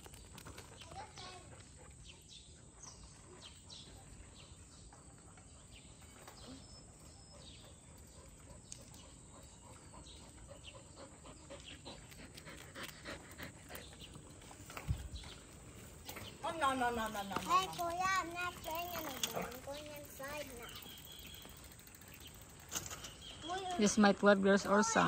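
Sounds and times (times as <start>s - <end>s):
dog panting: 6.8s - 14.7s, 18.5s - 21.0s
faint bird chirps: 20.4s - 23.9s.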